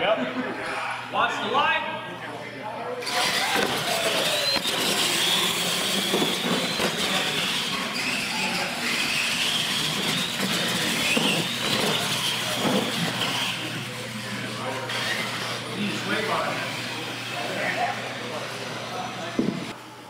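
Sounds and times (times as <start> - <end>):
electric motor and gear whine: 3.0 - 19.8.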